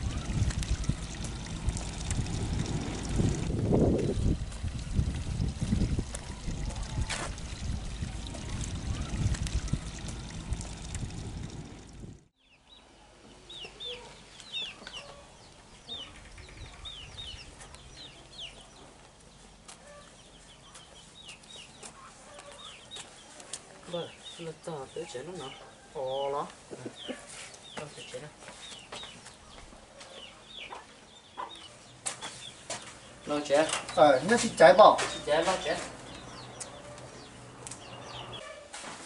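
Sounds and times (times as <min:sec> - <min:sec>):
birds chirping: 0:00.0 - 0:38.5
loud rough rushing noise: 0:02.0 - 0:04.1.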